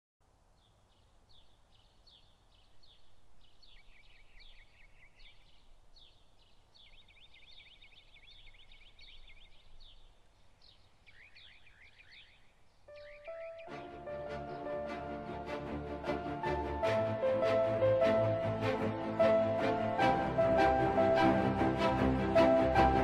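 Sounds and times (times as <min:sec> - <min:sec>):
small birds chirping: 0:00.4 - 0:15.2.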